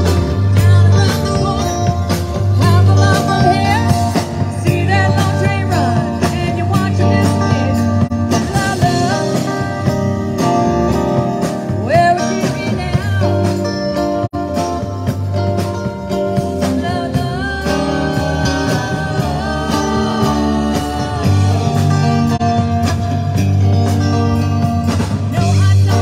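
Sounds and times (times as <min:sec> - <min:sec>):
person singing: 0:00.0 - 0:09.8, 0:16.6 - 0:22.4, 0:25.3 - 0:26.0
rock band playing: 0:00.0 - 0:26.0.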